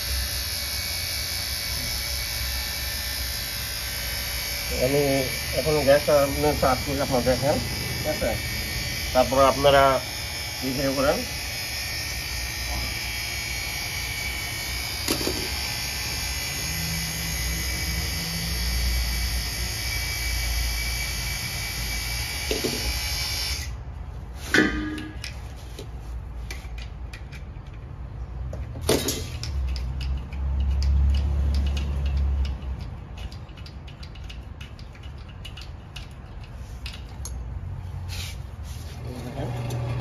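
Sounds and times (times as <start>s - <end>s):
clicks and knocks from fittings: 28.5s - 37.4s.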